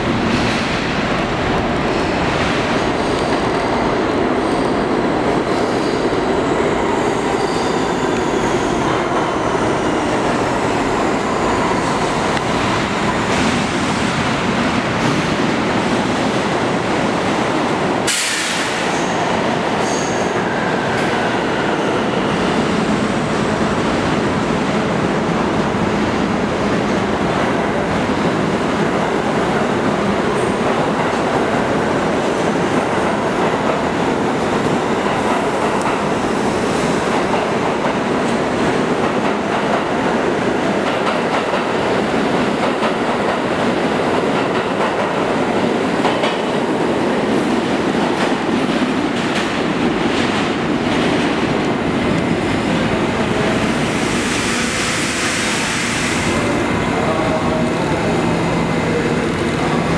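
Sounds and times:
subway train rumbling: 0:00.0 - 0:59.9.

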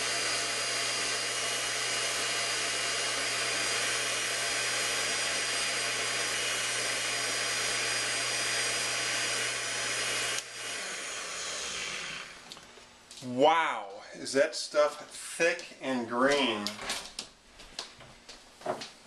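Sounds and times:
blender running: 0:00.0 - 0:12.6.

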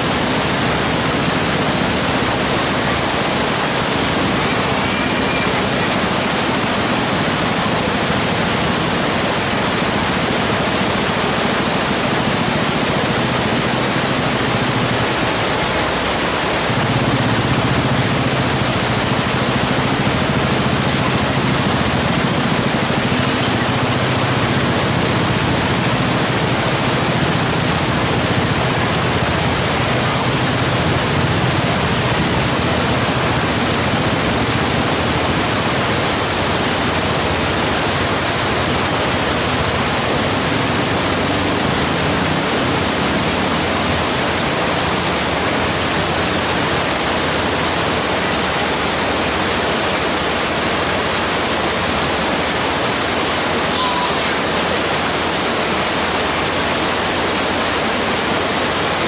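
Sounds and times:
river rushing over rocks: 0:00.0 - 0:59.0.

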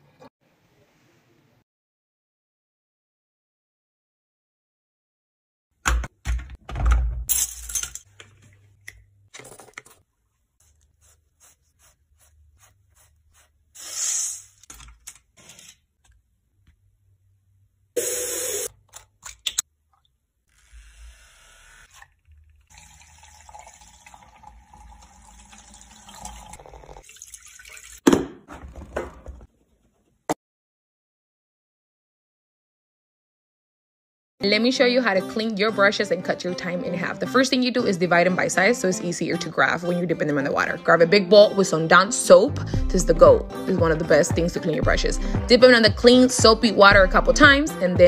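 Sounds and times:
water splashing and wet rubbing: 0:10.4 - 0:14.6.

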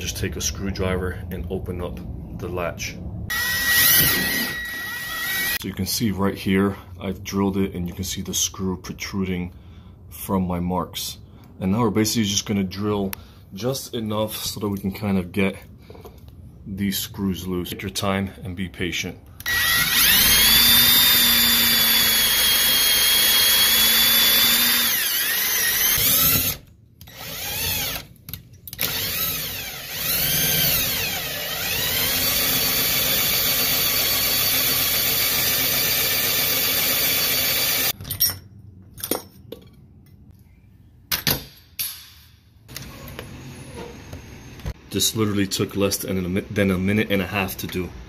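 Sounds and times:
cordless drill whining through metal: 0:03.3 - 0:05.6, 0:19.4 - 0:28.1, 0:28.7 - 0:38.0.

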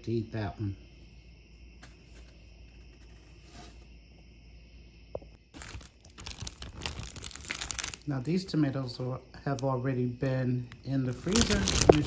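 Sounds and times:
plastic bag crinkling: 0:05.5 - 0:08.1, 0:10.7 - 0:12.0.

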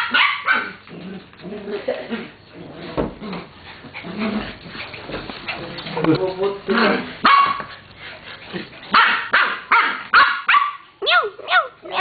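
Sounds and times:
small dogs playing: 0:00.0 - 0:09.5.

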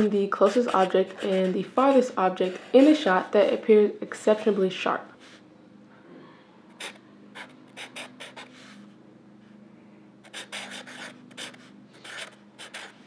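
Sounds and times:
marker scratching on paper: 0:00.0 - 0:03.6, 0:06.8 - 0:08.8, 0:10.3 - 0:13.0.

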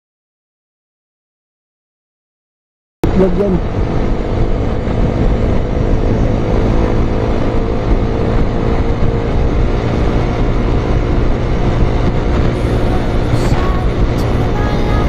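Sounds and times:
motorcycle engine running: 0:03.0 - 0:15.0
wind and road noise: 0:03.0 - 0:15.0.

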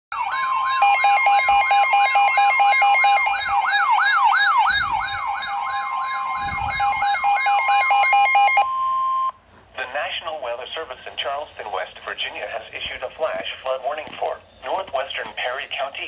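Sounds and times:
rising siren sweep: 0:00.1 - 0:09.4
steady alarm tone: 0:00.1 - 0:09.4
rapid beeping: 0:05.4 - 0:09.3.

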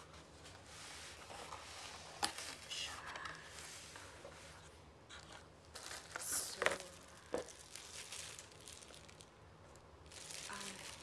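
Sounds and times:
plastic bag crinkling: 0:05.7 - 0:11.0.

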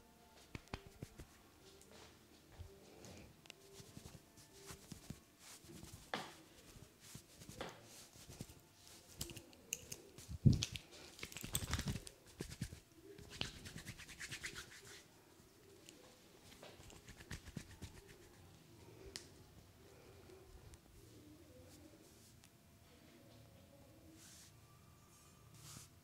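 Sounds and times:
hands rubbing skin in massage: 0:00.4 - 0:01.4, 0:03.6 - 0:09.5, 0:10.1 - 0:15.1, 0:16.5 - 0:18.4.

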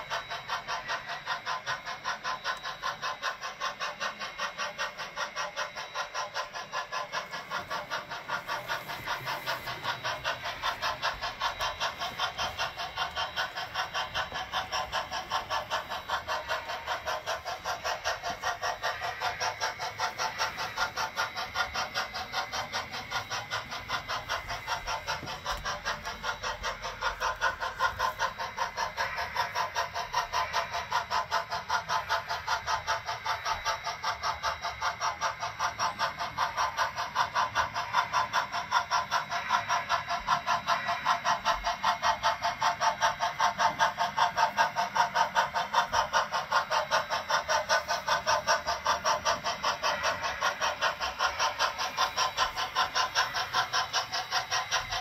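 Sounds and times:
model steam locomotive chuffing: 0:00.0 - 0:55.0.

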